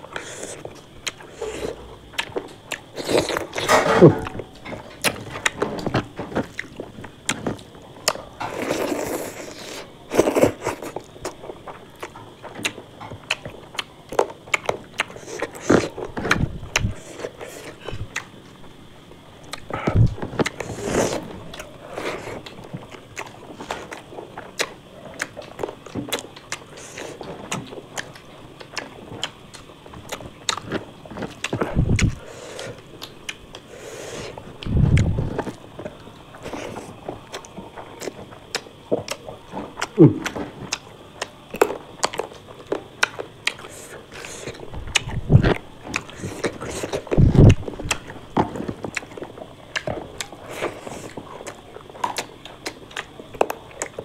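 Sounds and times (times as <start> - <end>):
person chewing and biting: 19.4 - 54.0.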